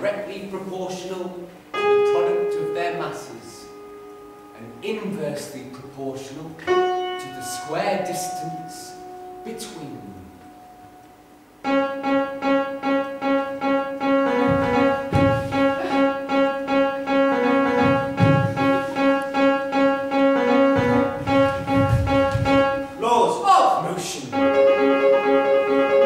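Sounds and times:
instrumental music pulsing notes: 3.6 - 4.9, 6.6 - 23.0, 24.3 - 26.0
low thumps: 14.0 - 23.0.

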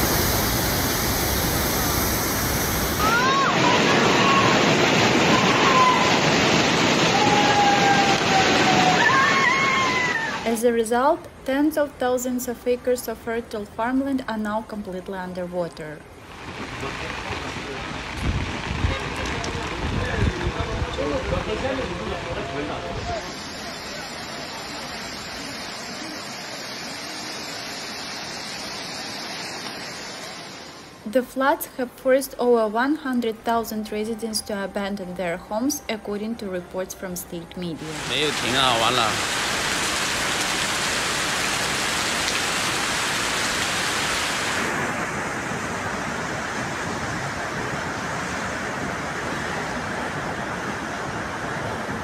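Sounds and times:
rushing water and spray: 0.0 - 10.5, 16.0 - 31.0, 37.8 - 52.0
rain and floodwater hissing: 0.0 - 10.7, 16.0 - 31.9, 37.7 - 52.0.

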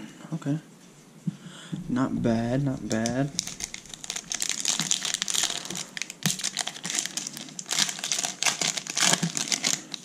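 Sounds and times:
foil wrapper tearing and crinkling: 2.8 - 10.0.

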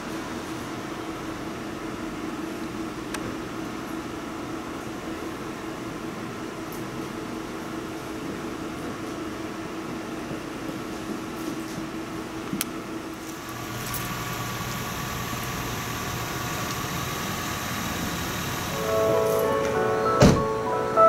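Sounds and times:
mechanical hum: 0.0 - 21.0.

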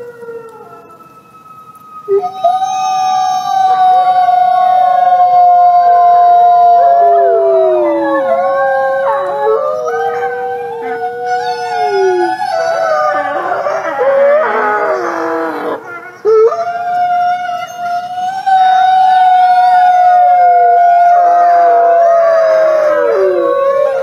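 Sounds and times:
wolves howling in chorus: 0.0 - 24.0
wolves yipping: 7.1 - 16.9.

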